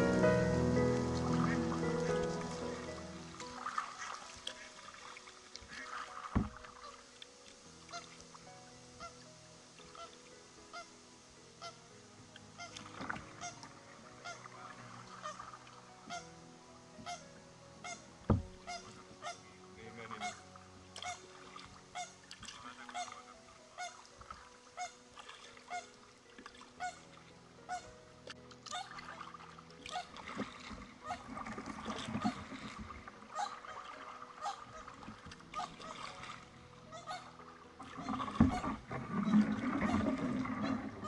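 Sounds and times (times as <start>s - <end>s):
paddle knocking on hull: 5.8s - 6.7s, 18.2s - 18.8s, 29.9s - 36.4s, 37.9s - 41.0s.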